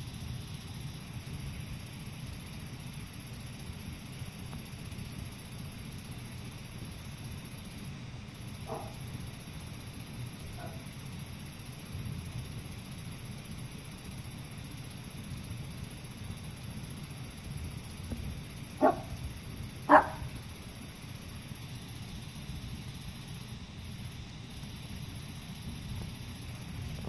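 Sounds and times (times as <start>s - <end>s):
low background hum: 0.0s - 27.0s
dog barking: 8.7s - 9.0s, 10.5s - 10.9s, 18.8s - 19.2s, 19.9s - 20.3s.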